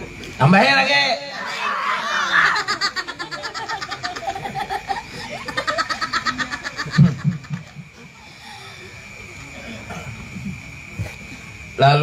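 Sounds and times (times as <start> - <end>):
boy laughing hard: 1.8 - 8.1.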